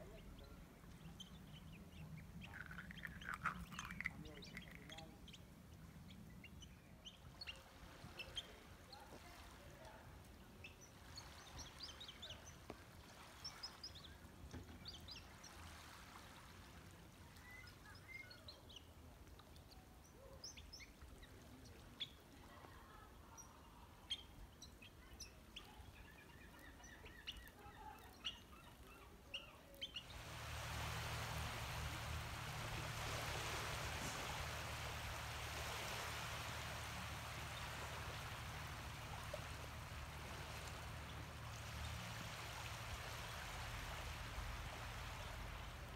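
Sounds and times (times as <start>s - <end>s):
shorebirds chirping: 0.0s - 9.5s, 23.5s - 45.9s
steady rushing noise: 30.1s - 45.9s.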